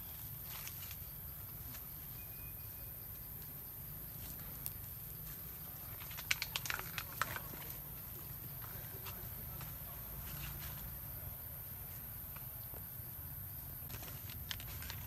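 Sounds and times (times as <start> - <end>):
leafy branches rustling and crackling: 0.0 - 2.8, 3.4 - 11.2, 13.8 - 15.0.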